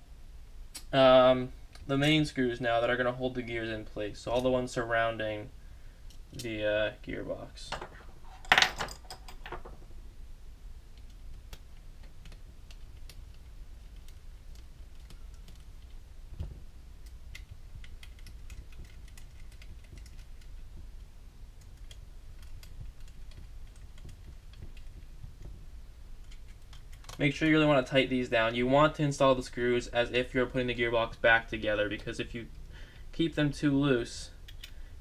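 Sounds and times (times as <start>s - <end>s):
steady low hum: 0.0s - 35.0s
small metal parts clicking: 17.0s - 20.6s.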